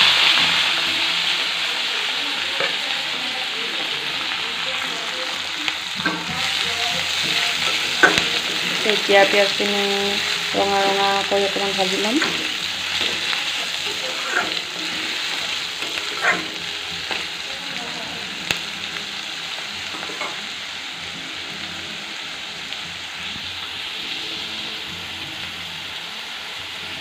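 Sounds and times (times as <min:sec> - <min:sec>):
onions sizzling in oil: 0:00.0 - 0:27.0
spatula scraping and stirring: 0:05.9 - 0:17.6.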